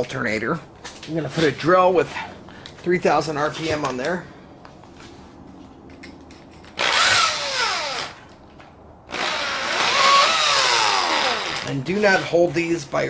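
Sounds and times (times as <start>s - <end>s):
electric drill whining: 6.8s - 8.2s, 9.1s - 11.7s.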